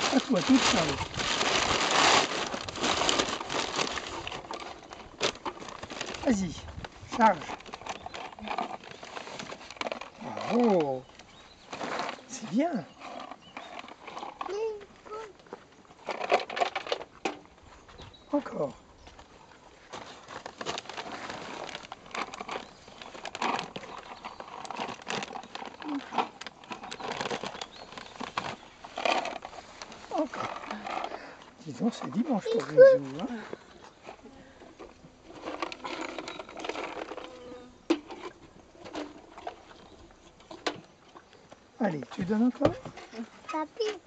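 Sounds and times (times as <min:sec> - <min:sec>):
paper feed sack rustling: 0:00.0 - 0:15.2, 0:19.8 - 0:40.0
donkey munching: 0:32.5 - 0:41.7.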